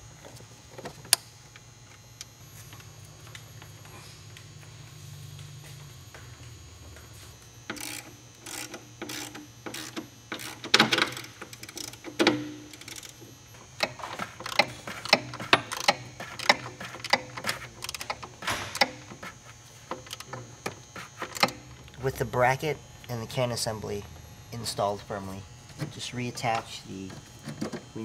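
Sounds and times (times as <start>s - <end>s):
socket ratchet clicking: 7.7s - 13.2s, 13.8s - 19.1s, 19.9s - 20.3s.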